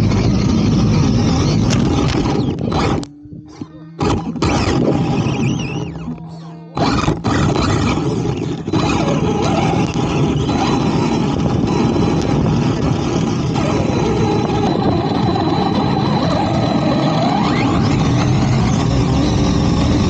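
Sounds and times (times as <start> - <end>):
wind and tyres on sand: 0.0 - 2.9, 7.0 - 20.0
electric motor whining: 0.0 - 20.0.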